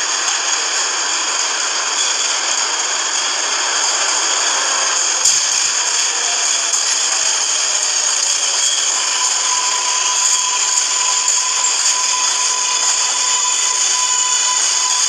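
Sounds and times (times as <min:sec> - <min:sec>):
thin steady whine: 0:00.0 - 0:15.0
train rushing noise: 0:00.0 - 0:15.0.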